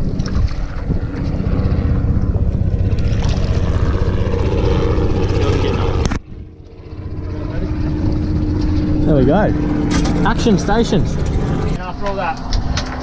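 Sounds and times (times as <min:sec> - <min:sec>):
wind buffeting microphone: 0:00.0 - 0:13.0.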